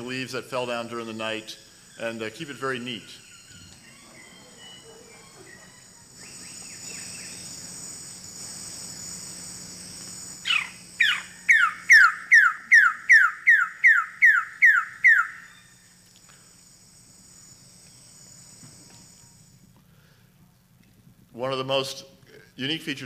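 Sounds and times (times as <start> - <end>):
insects droning: 0.0 - 23.0
bird calling down-slurred notes: 0.7 - 7.8, 10.4 - 15.9.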